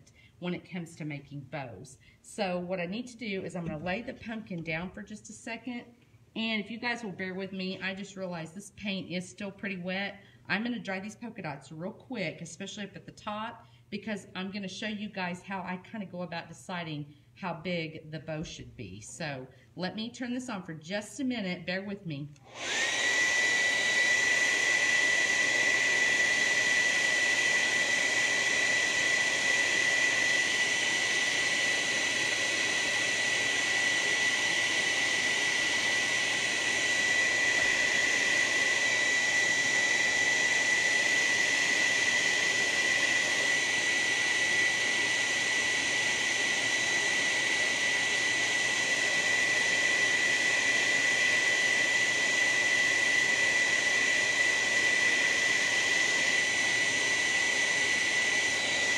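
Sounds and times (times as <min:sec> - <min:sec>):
blow dryer whining: 0:00.0 - 0:05.8, 0:21.4 - 0:58.9.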